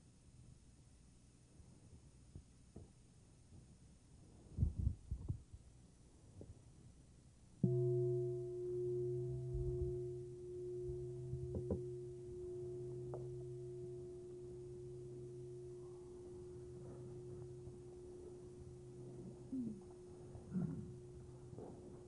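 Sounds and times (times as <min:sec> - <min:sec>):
meditation bell ringing: 0:07.6 - 0:22.0
soft knocks: 0:10.9 - 0:12.2.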